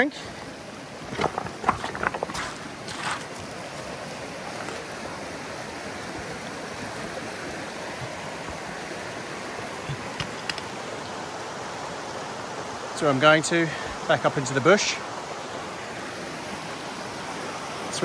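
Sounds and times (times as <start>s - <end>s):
river rushing over stones: 0.0s - 18.0s.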